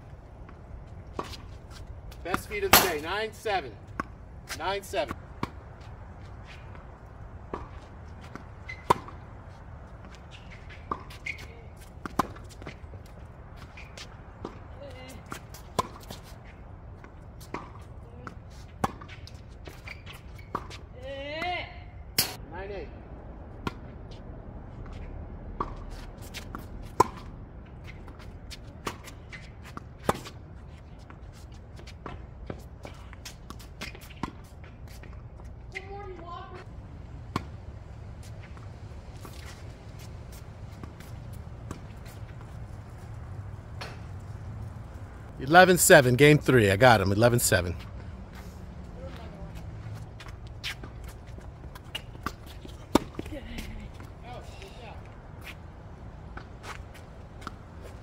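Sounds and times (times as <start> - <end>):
tennis balls struck and bouncing: 0.4 - 22.4, 24.8 - 31.2, 31.8 - 58.0
tennis ball struck by racket: 2.3 - 3.2, 7.4 - 9.3.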